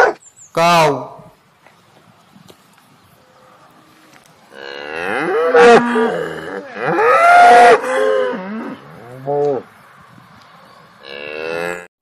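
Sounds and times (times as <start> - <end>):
cow mooing: 3.5 - 9.6, 11.0 - 11.9.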